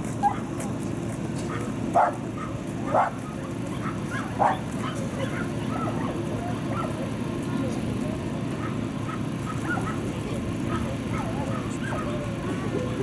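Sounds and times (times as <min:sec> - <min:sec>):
dog barking: 0:00.2 - 0:00.5, 0:01.5 - 0:07.0, 0:08.6 - 0:12.2.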